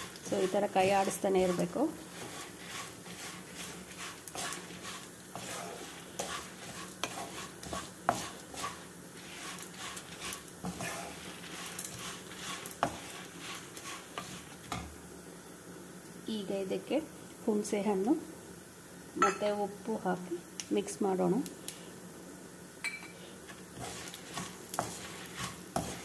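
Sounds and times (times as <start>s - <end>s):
lentils rattling in a pan: 0.0s - 14.8s, 23.6s - 26.0s
spatula scraping a pan: 0.0s - 14.9s, 23.5s - 26.0s.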